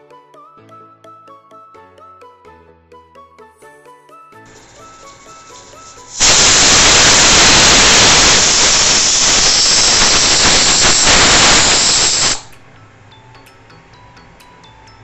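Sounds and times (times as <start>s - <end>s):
pressure cooker steam hiss: 4.5s - 12.6s.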